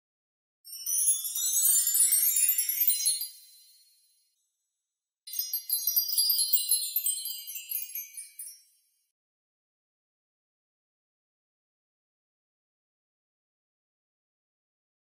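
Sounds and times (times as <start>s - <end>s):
sparkling chime tinkles: 0.7s - 4.5s, 5.3s - 9.1s.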